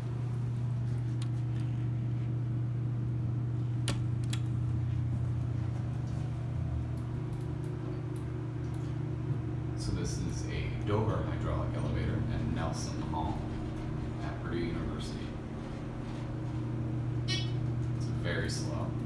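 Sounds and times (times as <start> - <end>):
elevator humming: 0.0 - 19.0
elevator button clicks: 17.2 - 18.0.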